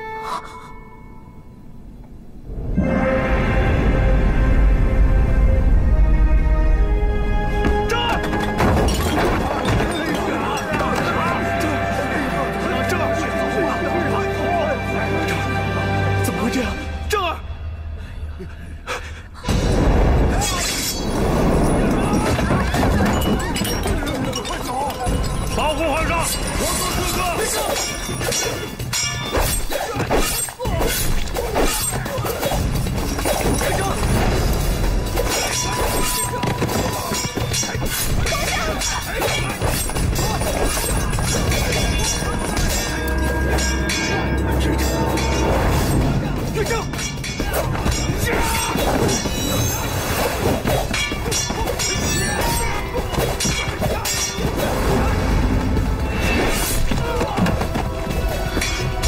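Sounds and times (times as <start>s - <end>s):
background music: 0.0s - 59.0s
swords clashing: 22.1s - 34.1s, 35.0s - 46.0s, 46.6s - 54.7s, 58.3s - 59.0s
sword clashes and hits: 46.6s - 54.6s.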